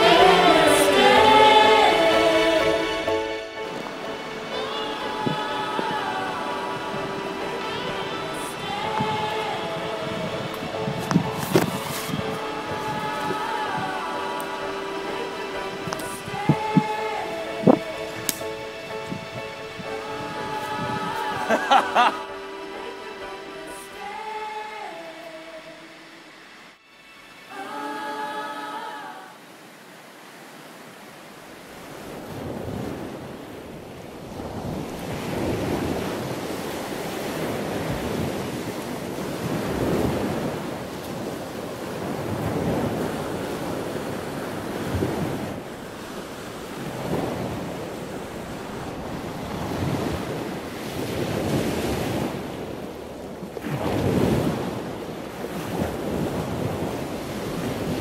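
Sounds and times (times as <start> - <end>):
wind on microphone: 0.0 - 21.6, 31.6 - 58.0.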